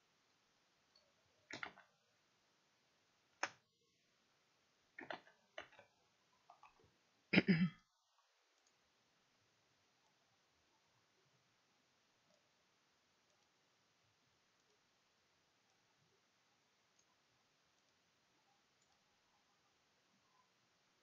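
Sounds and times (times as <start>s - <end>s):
computer mouse clicks: 0.9s - 1.9s, 3.4s - 3.6s, 5.0s - 6.9s, 8.6s - 8.8s, 13.2s - 13.6s, 16.9s - 18.0s, 18.8s - 19.1s.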